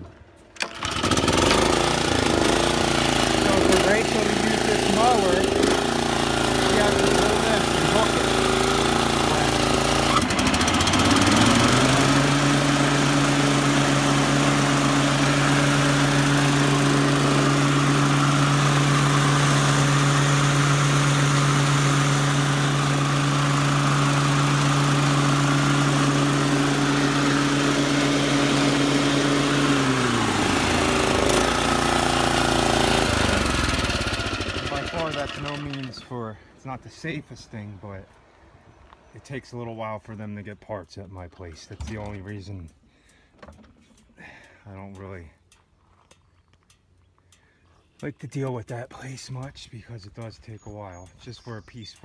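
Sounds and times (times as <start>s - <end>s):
lawn mower engine running: 0.0s - 36.5s.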